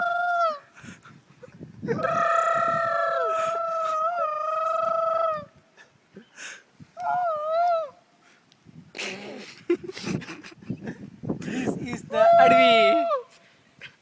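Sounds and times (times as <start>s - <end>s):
man imitating wailing animal cry: 1.9s - 5.5s, 12.1s - 13.3s.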